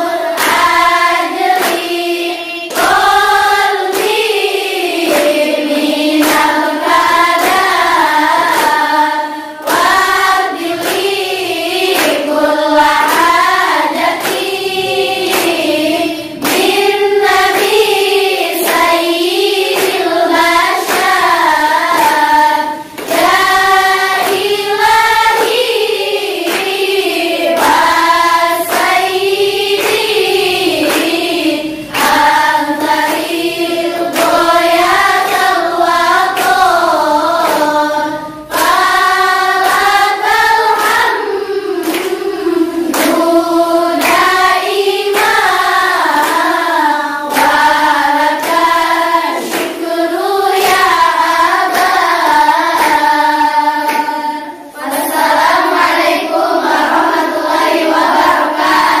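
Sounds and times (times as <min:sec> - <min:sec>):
girls choir singing: 0:00.0 - 0:59.0
sharp claps: 0:00.1 - 0:59.0.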